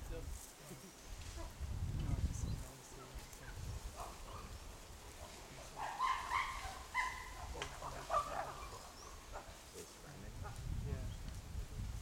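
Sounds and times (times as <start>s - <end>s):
monkeys calling: 5.2s - 9.6s.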